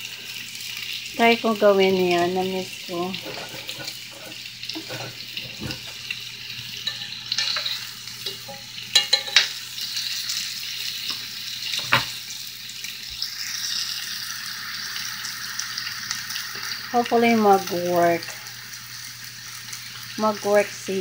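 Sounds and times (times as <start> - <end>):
meat sizzling in skillet: 0.0 - 21.0
metal utensil clinking on pan: 6.8 - 9.6.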